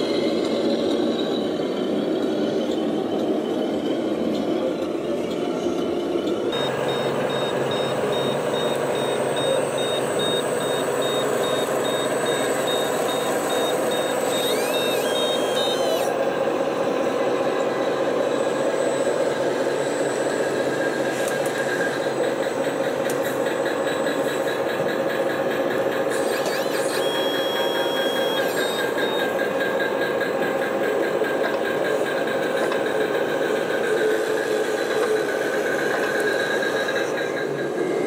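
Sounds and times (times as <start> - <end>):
simulated diesel engine sounds: 0.0 - 38.0
electronic reversing beeper: 6.5 - 16.2, 26.1 - 30.0.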